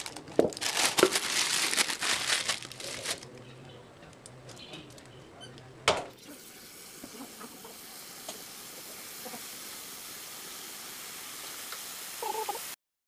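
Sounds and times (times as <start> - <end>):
plastic piping bag crinkling: 0.0 - 3.4.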